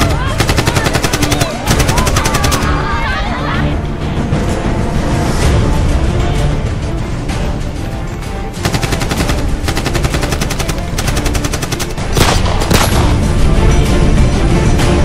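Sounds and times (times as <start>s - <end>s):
dramatic film music: 0.0s - 15.0s
automatic rifle fire: 8.7s - 13.1s.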